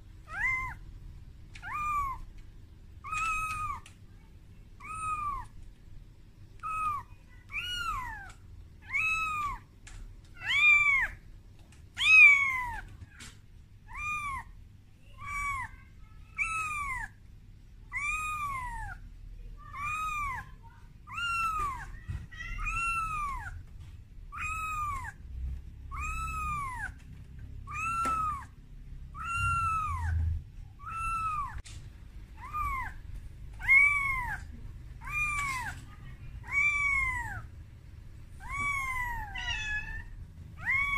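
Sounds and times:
kitten meowing: 0.2s - 0.8s, 1.5s - 2.4s, 3.0s - 3.9s, 4.8s - 5.6s, 6.6s - 9.6s, 10.4s - 11.2s, 12.0s - 13.3s, 13.9s - 14.5s, 15.2s - 17.2s, 17.9s - 19.0s, 19.7s - 20.5s, 21.1s - 23.6s, 24.3s - 25.2s, 25.9s - 27.0s, 27.6s - 31.6s, 32.4s - 37.5s, 38.4s - 40.9s.

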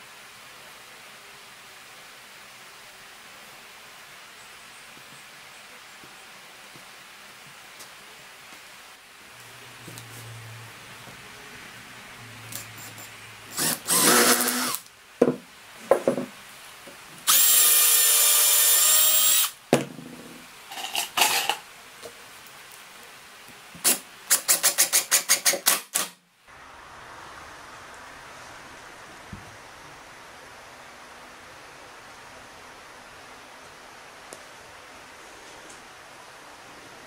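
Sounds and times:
cordless drill driving screws: 12.6s - 14.8s, 17.3s - 19.6s.

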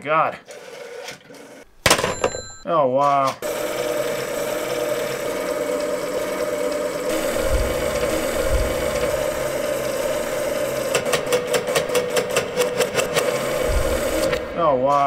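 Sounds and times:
rotary dial whirring: 3.4s - 15.0s.

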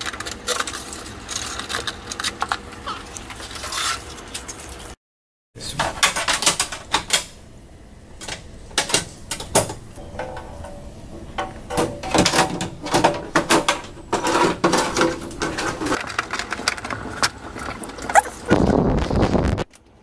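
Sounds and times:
metal cover scraping: 10.0s - 16.0s.

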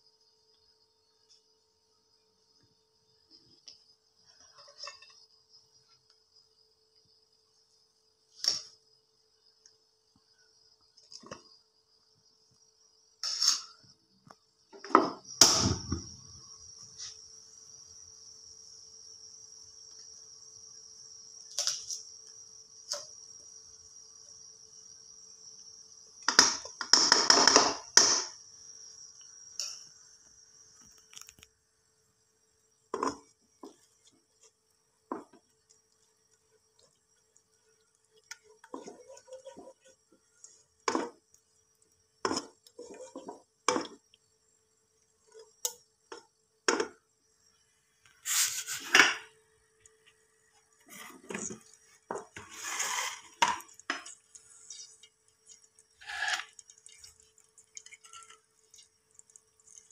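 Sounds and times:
spatula knocking and scraping pan: 32.9s - 33.9s, 38.2s - 40.2s, 40.8s - 41.3s, 42.2s - 44.0s.

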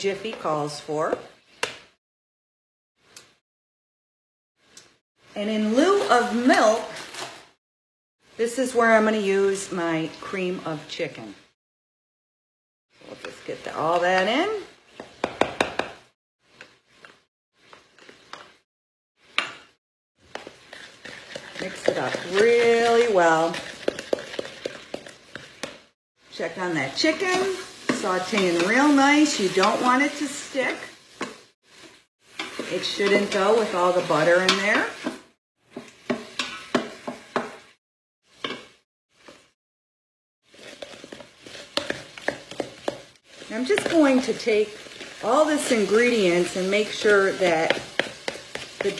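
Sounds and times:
wooden spoon stirring: 16.5s - 18.6s, 20.2s - 25.9s, 40.5s - 48.9s
spatula scraping can: 20.2s - 25.9s, 40.5s - 48.9s.

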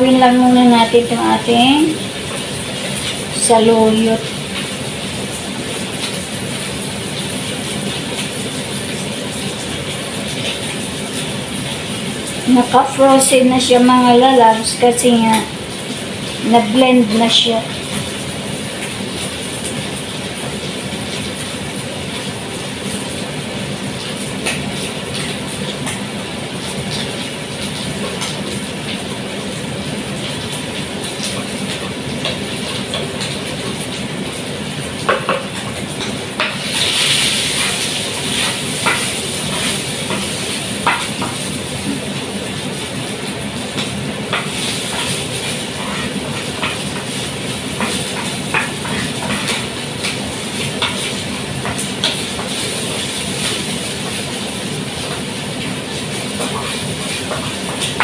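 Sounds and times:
chicken sizzling in a frying pan: 0.0s - 58.0s
gas stove rushing hum: 0.0s - 58.0s
wooden spatula stirring in a pot: 43.8s - 54.4s.

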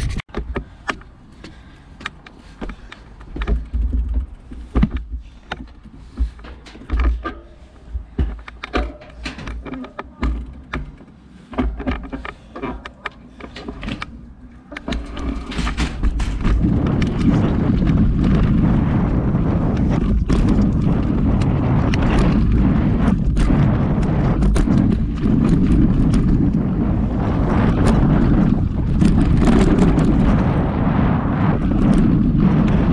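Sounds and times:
wind on microphone: 0.0s - 0.8s, 14.7s - 32.9s
bike clicks and knocks: 0.0s - 32.9s
tyres on dirt track: 0.0s - 32.9s.

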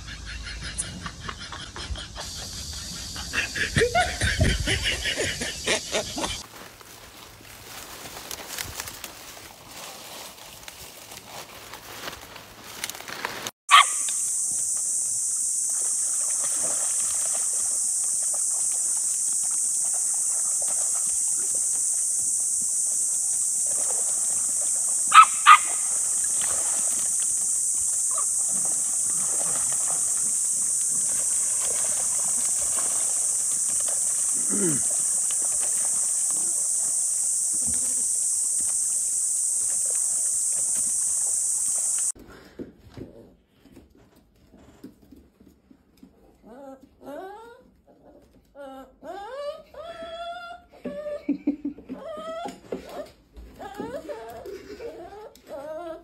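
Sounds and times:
small dog yapping: 13.7s - 14.2s, 25.1s - 26.0s
high-pitched hiss: 13.7s - 42.2s.

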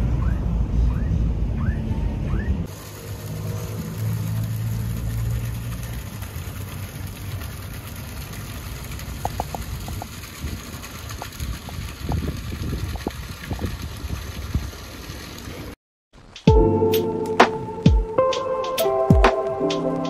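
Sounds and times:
boat engine idling: 2.7s - 12.1s.

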